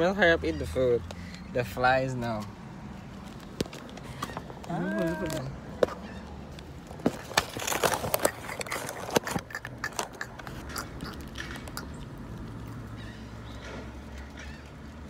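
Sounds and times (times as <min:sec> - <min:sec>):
food packaging crinkling: 0:07.1 - 0:10.6.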